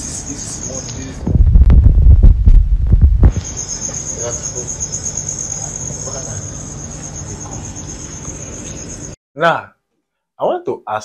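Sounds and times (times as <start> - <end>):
crickets chirping: 0.0 - 1.3, 3.2 - 9.2
steady low hum: 0.0 - 9.2.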